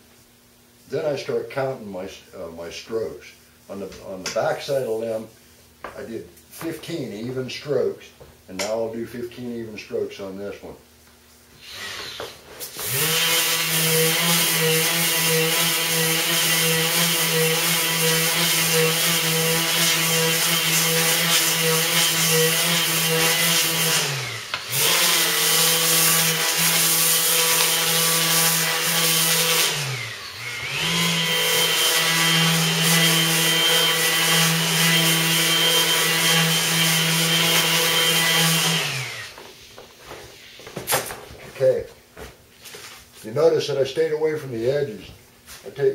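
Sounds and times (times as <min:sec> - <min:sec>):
electric sander whining: 0:11.6 - 0:39.4.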